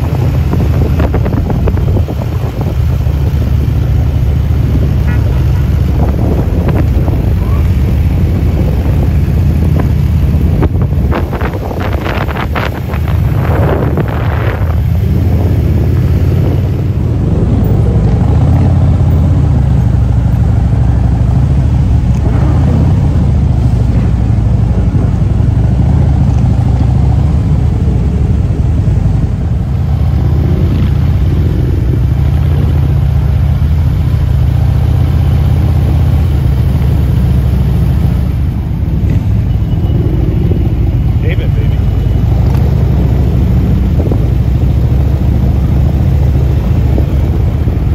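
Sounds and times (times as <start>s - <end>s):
motorcycle engines running: 0.0s - 47.9s.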